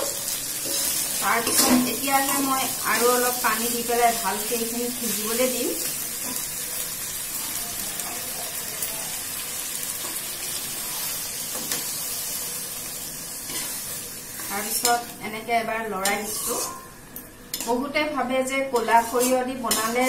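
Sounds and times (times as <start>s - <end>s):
food sizzling in a metal wok: 0.0s - 20.0s
metal spatula scraping a pan: 13.4s - 15.1s, 16.0s - 17.0s, 18.7s - 20.0s.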